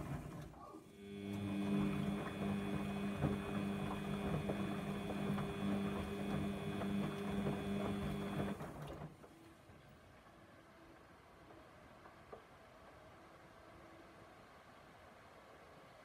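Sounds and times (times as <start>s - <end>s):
wash churning: 0.0s - 9.0s
washing machine drum motor whine: 0.0s - 9.4s.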